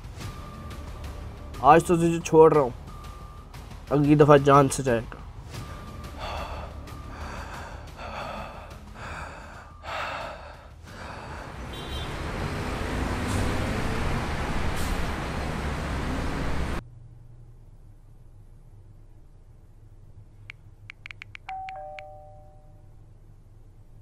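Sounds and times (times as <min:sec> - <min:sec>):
man gasping for breath: 0:06.1 - 0:11.7
rushing noise: 0:10.3 - 0:16.8.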